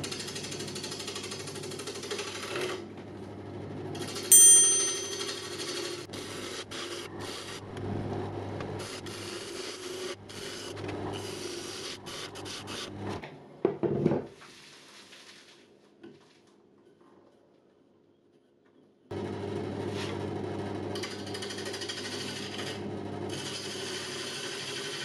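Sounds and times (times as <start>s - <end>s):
gouge scraping wood on lathe: 8.8s - 13.2s, 21.0s - 25.0s
lathe motor hum: 19.1s - 25.0s.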